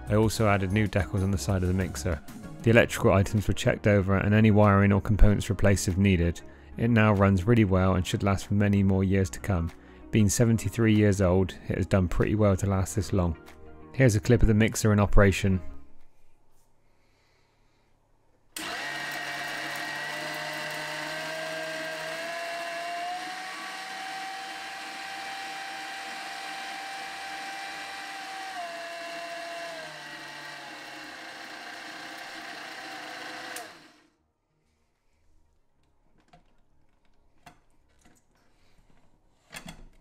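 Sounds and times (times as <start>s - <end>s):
food mixer motor whine: 18.6s - 34.1s.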